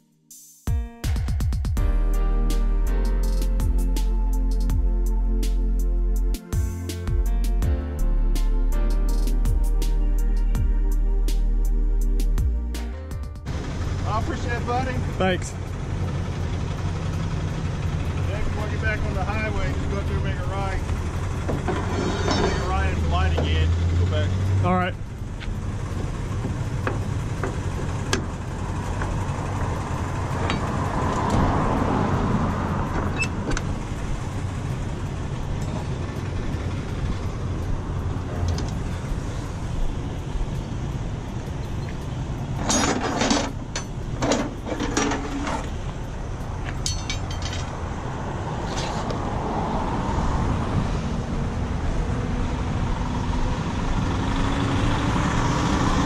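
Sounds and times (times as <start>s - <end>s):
truck engine idling: 2.2s - 48.7s.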